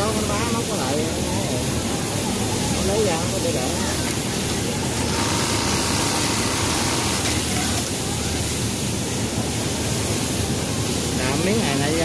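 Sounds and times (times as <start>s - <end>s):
sewing machine running: 5.0s - 7.5s.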